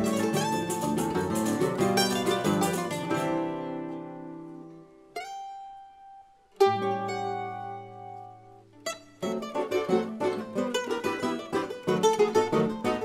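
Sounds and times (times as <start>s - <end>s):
string ensemble playing polka: 0.0s - 3.7s, 9.3s - 13.0s
single plucked note: 0.0s - 13.0s.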